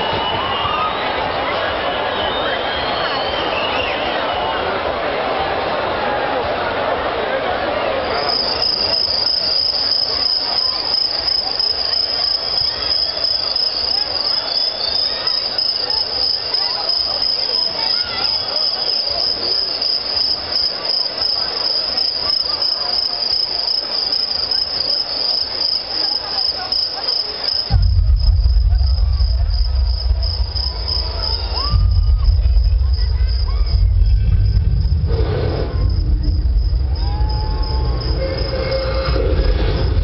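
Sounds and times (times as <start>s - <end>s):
murmur of crowd: 0.0s - 40.0s
insect trilling: 8.3s - 39.8s.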